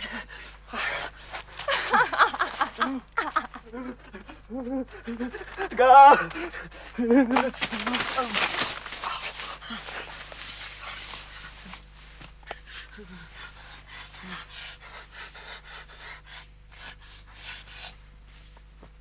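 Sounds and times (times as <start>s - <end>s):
heavy breathing: 0.0s - 2.6s, 3.6s - 7.1s, 7.8s - 18.0s
low steady hum: 0.0s - 19.0s
soft vocal sounds: 2.9s - 18.0s
sleeping bags and clothing rustling: 7.3s - 12.2s.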